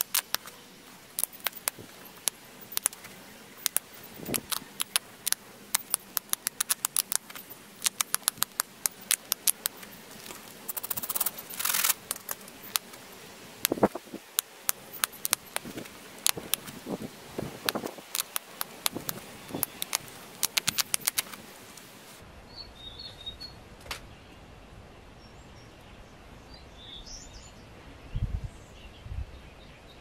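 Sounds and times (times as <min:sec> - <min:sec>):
flint flakes snapping clicks: 0:00.0 - 0:00.5, 0:01.2 - 0:13.0, 0:13.6 - 0:16.8, 0:17.6 - 0:21.9.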